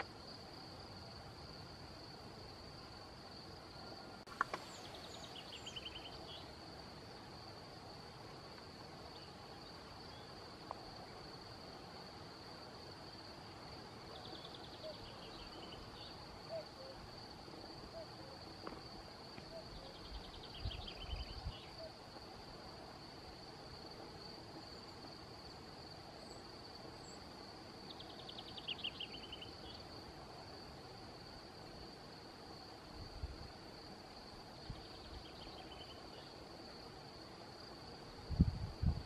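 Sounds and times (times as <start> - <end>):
insect trill: 0.0 - 39.0
songbird trilling: 4.6 - 6.5
distant cuckoo calling: 14.3 - 17.1, 19.4 - 22.0
wind buffeting microphone: 38.2 - 39.0.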